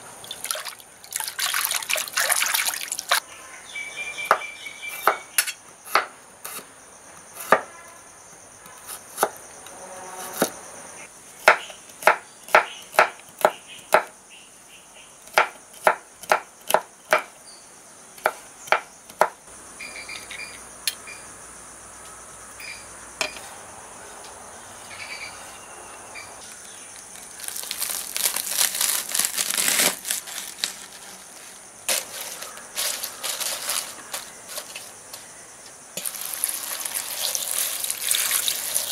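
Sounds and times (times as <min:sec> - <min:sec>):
high insect drone: 0:00.0 - 0:12.8, 0:13.5 - 0:38.9
knife crunching through onions: 0:27.2 - 0:31.1, 0:36.0 - 0:38.9.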